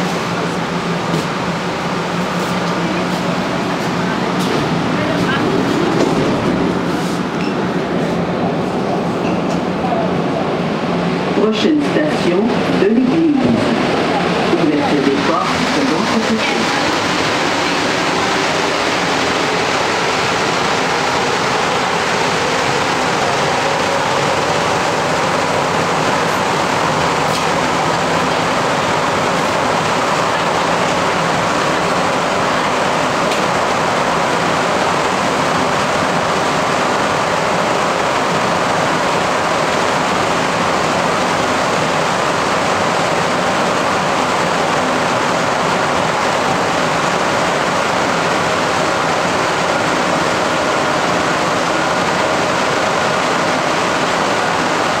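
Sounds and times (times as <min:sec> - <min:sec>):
metro train rumbling in tunnel: 0:00.0 - 0:55.0.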